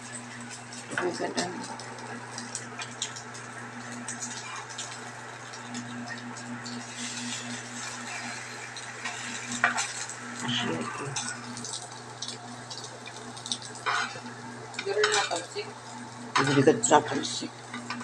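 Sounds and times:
induction cooker hum: 0:00.0 - 0:18.0
patties sizzling: 0:00.0 - 0:18.0
utensils scraping frying pan: 0:04.2 - 0:04.9, 0:06.8 - 0:11.4, 0:13.8 - 0:14.3.

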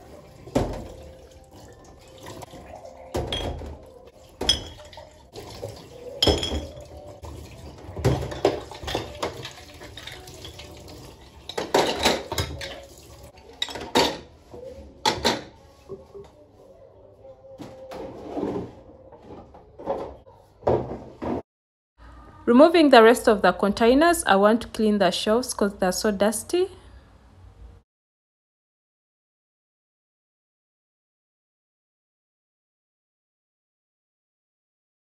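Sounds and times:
glass jars clinking on metal: 0:03.2 - 0:03.7, 0:04.4 - 0:05.0, 0:06.1 - 0:07.0, 0:08.0 - 0:10.6, 0:11.5 - 0:12.8, 0:13.5 - 0:14.3.

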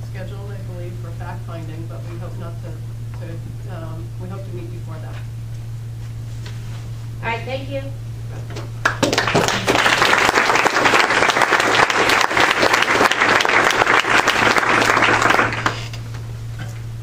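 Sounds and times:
audience applauding: 0:08.8 - 0:15.9.

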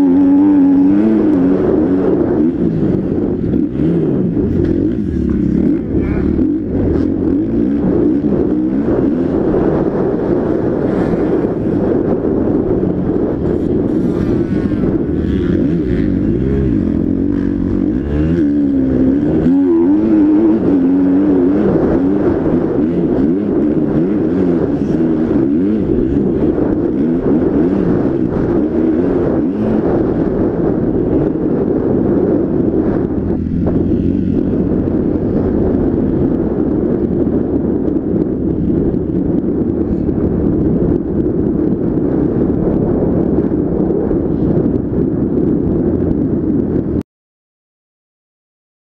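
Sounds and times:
motocross bike engine revving: 0:00.0 - 0:36.2.

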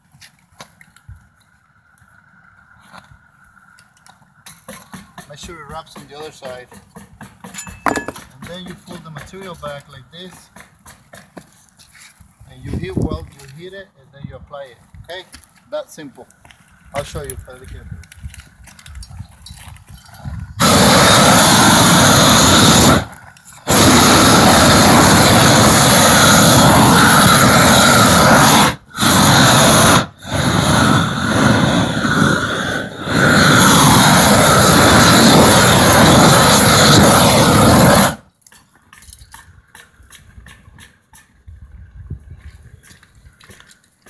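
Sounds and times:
gas torch flame roaring: 0:20.2 - 0:38.2.

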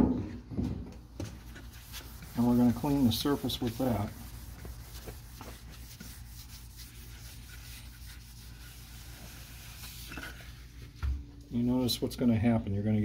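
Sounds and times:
paper towel rubbing rubber trim: 0:01.5 - 0:10.8.

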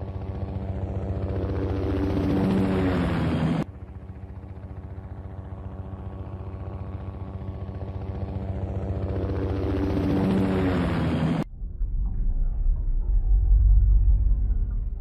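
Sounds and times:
helicopter rotor beating: 0:00.0 - 0:11.5.

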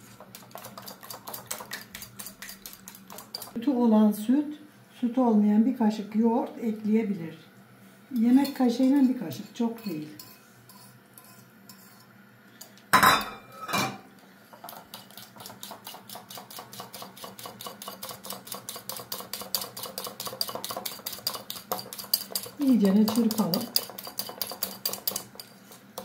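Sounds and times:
utensil clinking against bowl: 0:14.6 - 0:26.0.

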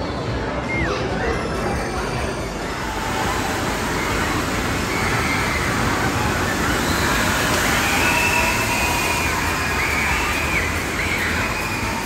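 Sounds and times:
water cascading and splashing: 0:02.8 - 0:12.0.

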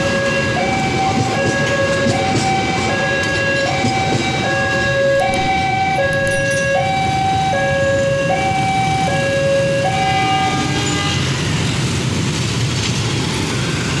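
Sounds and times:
level crossing two-tone alarm: 0:00.0 - 0:10.5
motorcycle traffic: 0:00.0 - 0:14.0.

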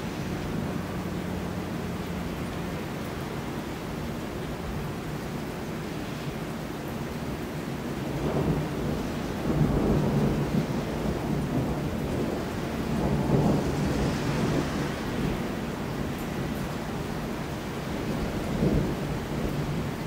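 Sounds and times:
steady rain: 0:00.0 - 0:20.0
thunder rumbling: 0:08.1 - 0:16.1, 0:17.8 - 0:20.0.

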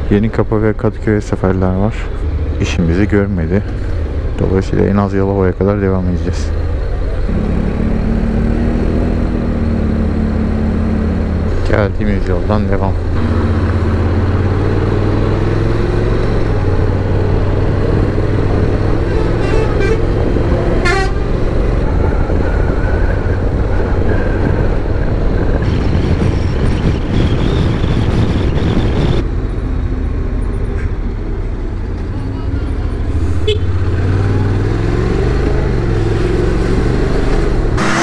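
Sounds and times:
wind and road noise: 0:00.0 - 0:38.0
horn toot: 0:19.0 - 0:21.4, 0:33.1 - 0:34.0, 0:37.8 - 0:38.0.

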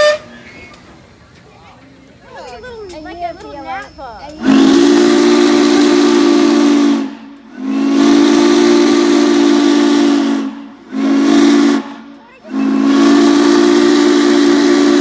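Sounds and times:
steam locomotive whistle blasts: 0:00.0 - 0:00.8, 0:04.4 - 0:15.0
hiss of steam: 0:02.4 - 0:15.0.

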